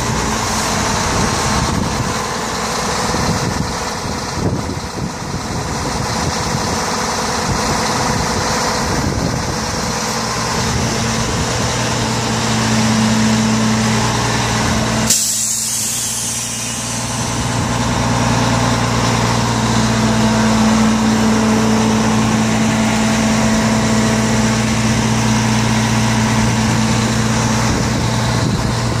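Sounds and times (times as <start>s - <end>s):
diesel engine idling: 0.0s - 29.0s
air release hiss: 15.0s - 17.9s.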